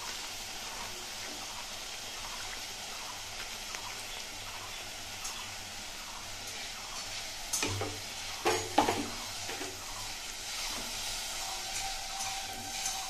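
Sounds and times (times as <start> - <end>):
bread deep-frying in oil: 0.0 - 13.0
spatula scraping a pan: 8.3 - 13.0.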